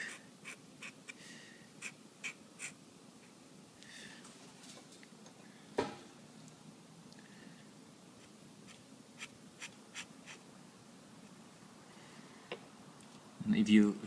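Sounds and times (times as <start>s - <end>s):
pen nib scratching on paper: 0.0s - 1.2s, 1.8s - 2.8s, 8.2s - 10.4s.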